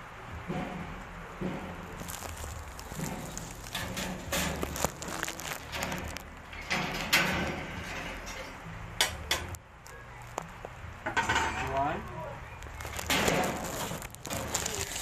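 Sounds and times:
metal oven racks clinking: 2.9 - 9.6, 11.1 - 11.8.

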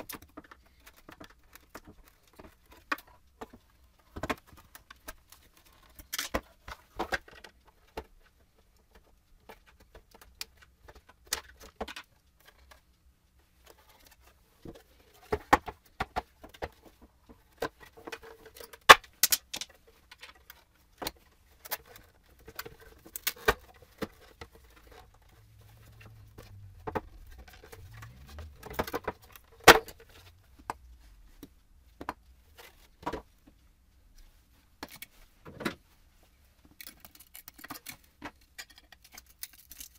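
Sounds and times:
plastic parts clicking and clattering: 0.0 - 12.8, 13.6 - 30.7, 36.6 - 39.9.

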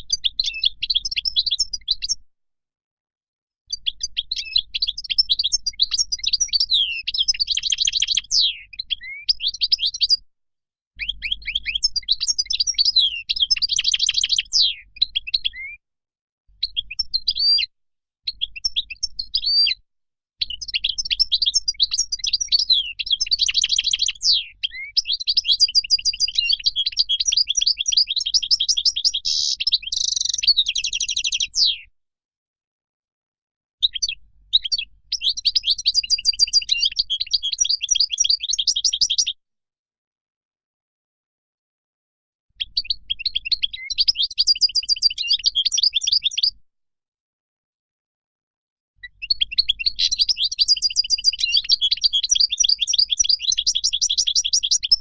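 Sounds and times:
goldfinch singing: 3.7 - 10.2, 11.0 - 15.8, 18.3 - 19.8, 20.4 - 31.8, 33.8 - 39.3, 42.6 - 46.6, 49.1 - 55.0.

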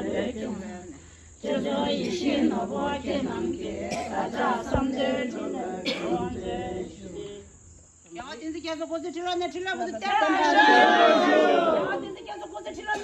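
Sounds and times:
group of women chanting: 0.0 - 7.6, 9.9 - 12.4.

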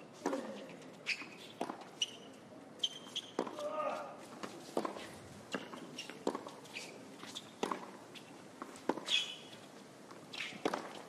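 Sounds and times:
shoe squeaks on court: 0.6 - 3.6, 4.8 - 9.7, 10.3 - 11.0
tennis ball racket strikes: 7.6 - 8.0, 8.6 - 9.4, 10.4 - 11.0.

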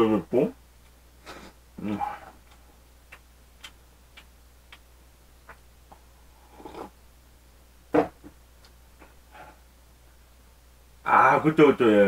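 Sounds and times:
chewing clicks: 2.4 - 4.9
swallowing mouth sound: 6.4 - 7.0.

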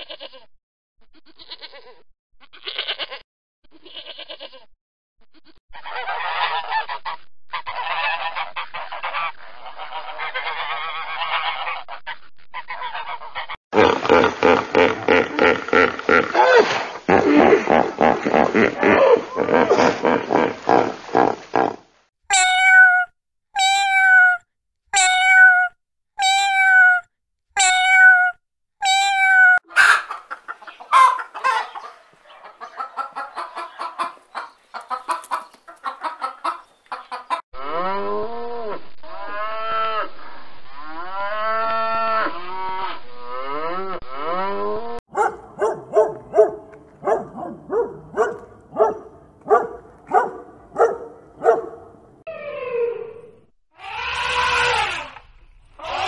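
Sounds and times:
animal calls: 5.7 - 23.0, 27.9 - 38.2, 45.2 - 55.2, 55.8 - 56.0
calf mooing: 53.8 - 55.0.

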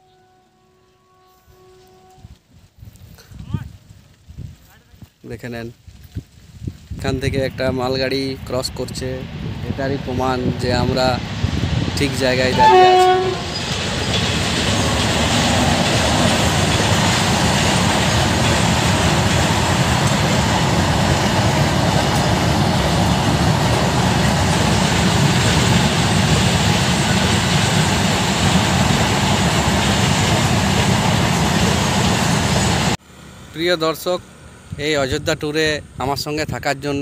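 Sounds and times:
train wheels rumbling on rails: 5.9 - 33.0.

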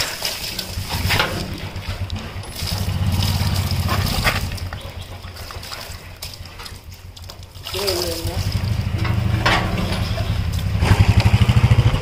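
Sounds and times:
diesel splashing into plastic bucket: 0.0 - 12.0
low rumble: 8.3 - 12.0.

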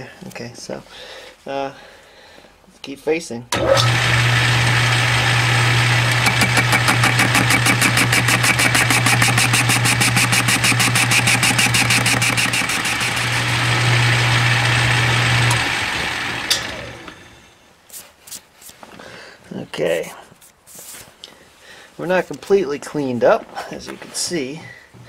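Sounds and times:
lathe motor humming: 3.6 - 17.4
spindle winding down: 3.6 - 17.4.

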